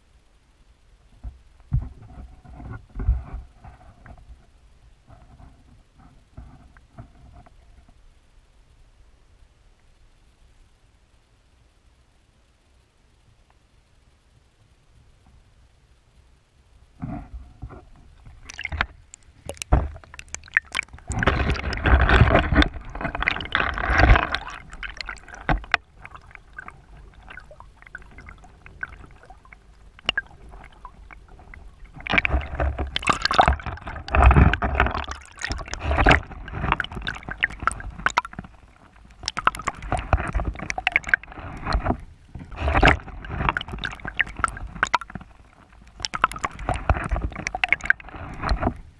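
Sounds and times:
crackles and knocks from water: 0:00.9 - 0:08.6, 0:16.6 - 0:48.9
water sloshing and gurgling: 0:01.2 - 0:08.0, 0:17.0 - 0:48.9.

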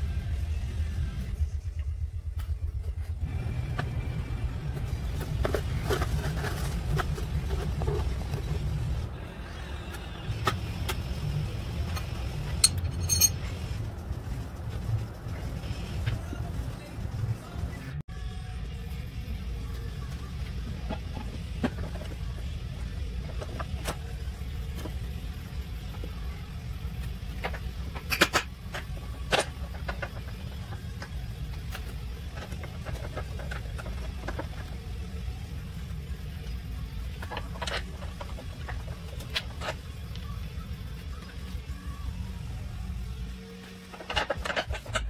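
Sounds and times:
metallic clinks of hand tools: 0:12.6 - 0:13.4.

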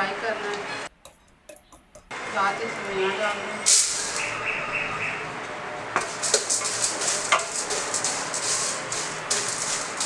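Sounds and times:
vermicelli sizzling in oil: 0:05.9 - 0:10.0.

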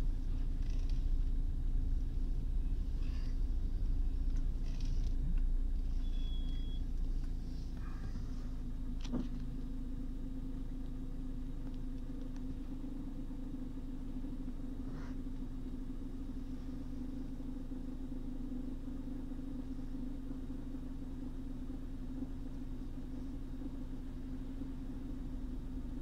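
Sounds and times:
car engine idling: 0:00.0 - 0:26.0
faint squeak: 0:05.9 - 0:08.6.

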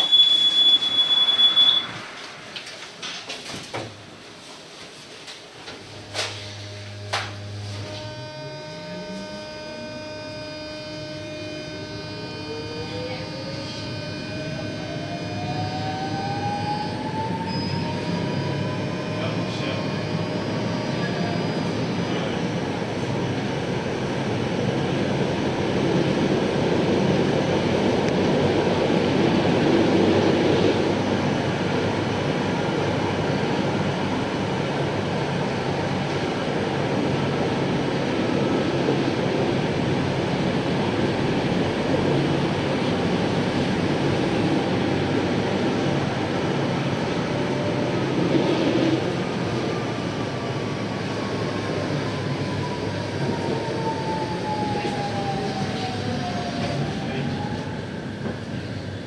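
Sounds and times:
tram motor hum: 0:05.3 - 0:59.0
tram wheels rumbling on rails: 0:21.0 - 0:59.0.

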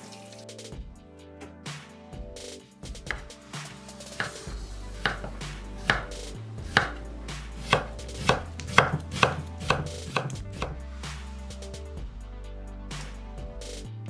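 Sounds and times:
knife striking wooden cutting board: 0:03.1 - 0:03.3, 0:04.2 - 0:10.8.

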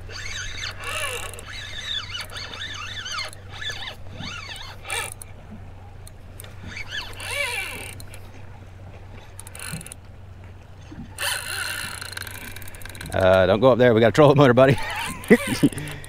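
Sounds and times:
fishing reel drag buzzing: 0:00.0 - 0:05.4, 0:06.0 - 0:08.4, 0:09.2 - 0:10.0, 0:10.9 - 0:13.3, 0:14.8 - 0:16.0.

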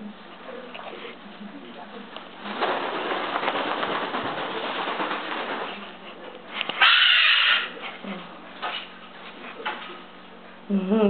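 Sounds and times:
cockatoo screeching: 0:06.8 - 0:07.8.

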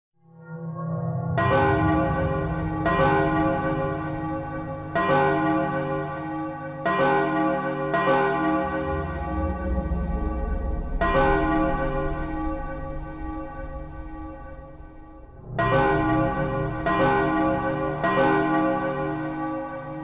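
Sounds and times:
church bells ringing: 0:01.3 - 0:20.0
steady low hum: 0:08.9 - 0:17.0.

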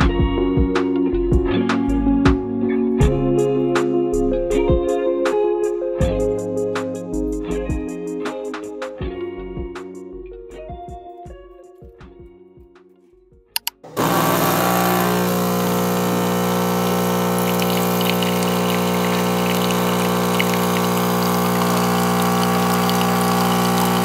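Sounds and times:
espresso machine pump humming: 0:13.9 - 0:24.0
coffee pouring into a mug: 0:14.0 - 0:24.0.

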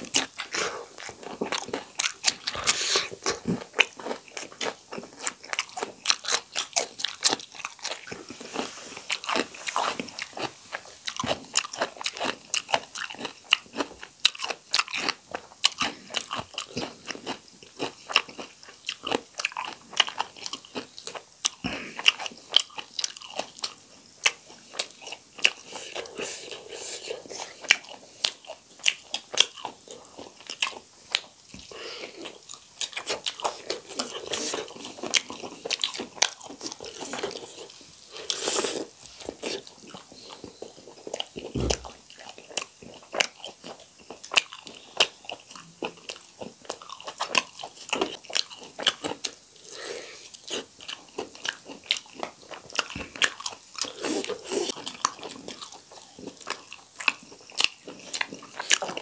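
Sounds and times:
crunchy bites and wet chewing: 0:00.0 - 0:59.0.

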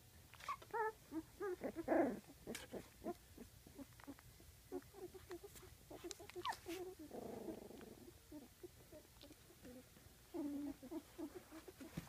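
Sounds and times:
puppies squeaking and grunting: 0:00.4 - 0:12.0
puppy whining: 0:00.4 - 0:12.0.

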